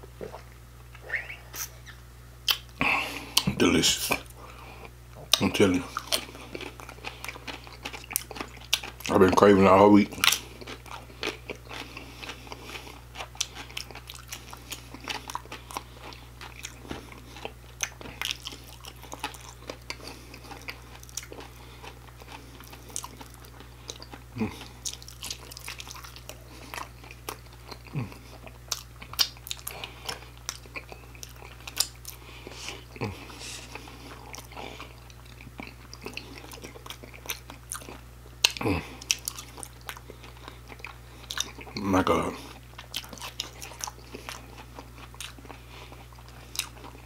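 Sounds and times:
faint low hum: 0:00.0 - 0:47.0
chewing crunchy food: 0:00.1 - 0:47.0
wet mouth clicks: 0:00.2 - 0:02.7.

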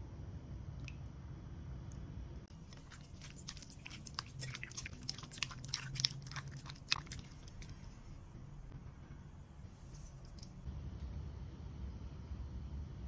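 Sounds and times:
wet squelching of chicken in egg: 0:02.5 - 0:07.9.

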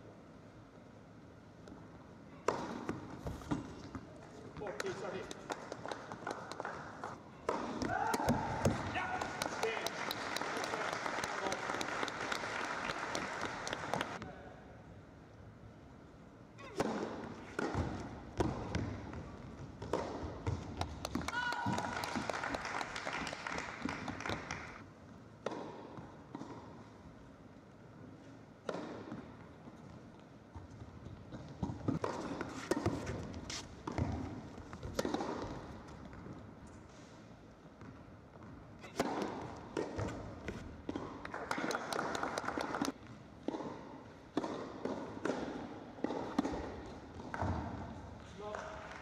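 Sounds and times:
racquet striking tennis ball: 0:02.4 - 0:03.8, 0:07.4 - 0:09.2, 0:16.6 - 0:21.3, 0:25.4 - 0:26.8, 0:28.6 - 0:29.4, 0:31.6 - 0:36.3, 0:38.8 - 0:42.0, 0:42.8 - 0:48.0
tennis ball bouncing: 0:02.4 - 0:04.0, 0:04.6 - 0:08.9, 0:16.6 - 0:21.8, 0:25.4 - 0:26.9, 0:28.6 - 0:30.0, 0:30.6 - 0:36.4, 0:37.8 - 0:48.0
people clapping: 0:04.7 - 0:07.2, 0:08.0 - 0:14.2, 0:20.7 - 0:24.8, 0:41.2 - 0:43.0, 0:48.3 - 0:49.0.

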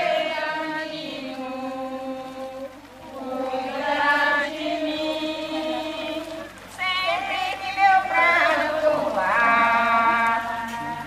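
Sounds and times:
devotional chant singing: 0:00.0 - 0:11.0.

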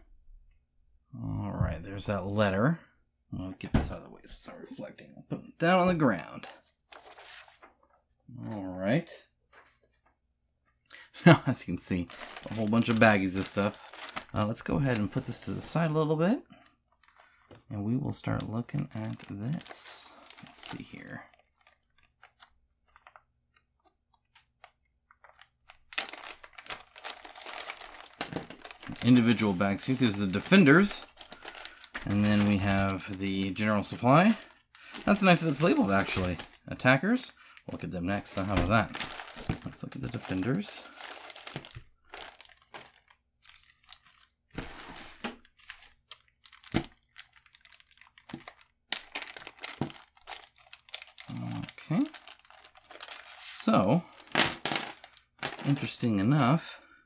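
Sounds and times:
plastic bag crinkling: 0:11.4 - 0:56.1.

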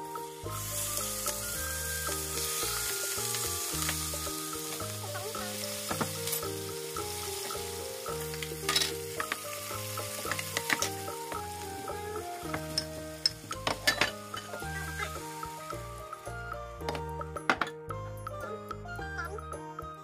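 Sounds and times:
chicken sizzling in oil: 0:00.0 - 0:16.4
instrumental background music: 0:00.0 - 0:20.0
wooden spatula knocking and scraping: 0:05.8 - 0:06.5, 0:08.3 - 0:15.0.

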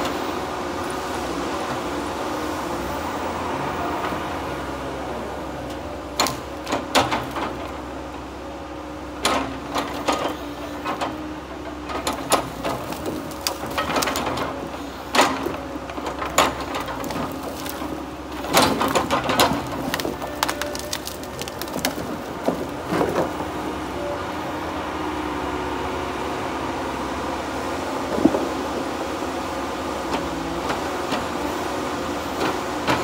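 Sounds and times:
log loader engine droning: 0:00.0 - 0:33.0
logs knocking together: 0:11.8 - 0:23.5.

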